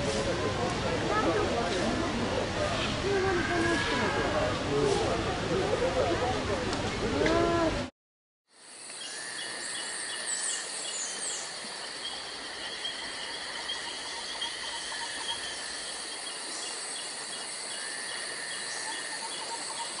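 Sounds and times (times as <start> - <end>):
high insect drone: 8.5 - 20.0.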